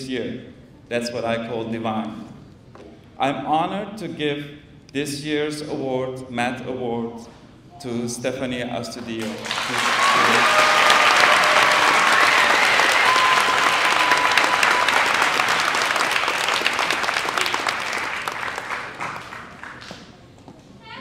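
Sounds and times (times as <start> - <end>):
audience applause: 9.2 - 20.2.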